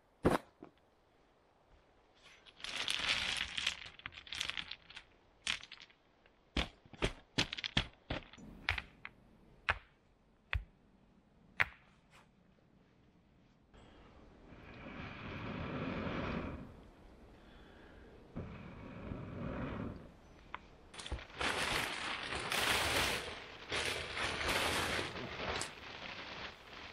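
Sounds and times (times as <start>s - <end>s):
rocks rattling and crunching: 2.2s - 10.7s, 20.3s - 26.9s
stones clacking set down: 2.5s - 10.7s, 20.5s - 21.4s
stones knocking together: 2.7s - 10.7s.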